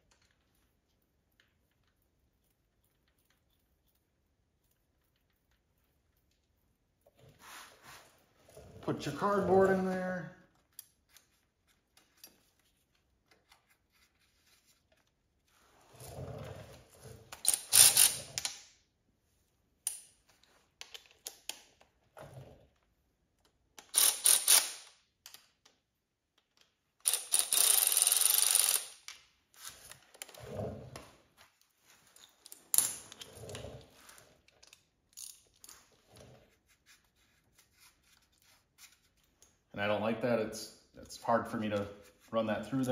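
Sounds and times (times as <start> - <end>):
ratchet wrench clicking: 17.4 - 18.5, 23.8 - 24.9, 27.0 - 29.0.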